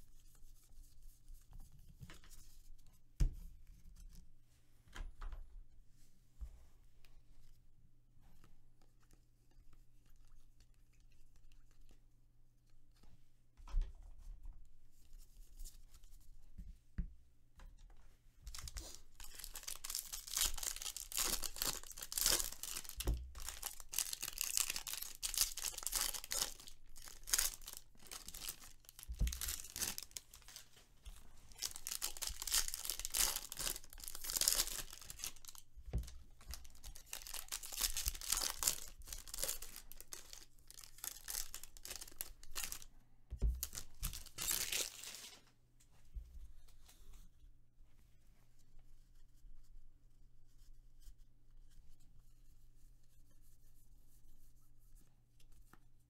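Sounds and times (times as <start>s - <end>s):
foil wrappers tearing and crinkling: 18.5s - 30.6s, 31.5s - 35.6s, 36.5s - 42.8s, 43.6s - 45.4s.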